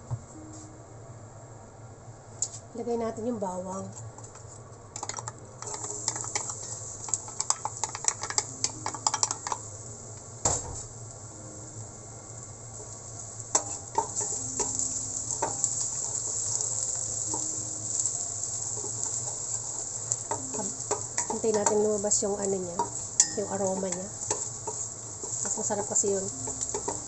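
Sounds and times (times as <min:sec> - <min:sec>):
garlic sizzling in oil: 0:05.6 - 0:27.0.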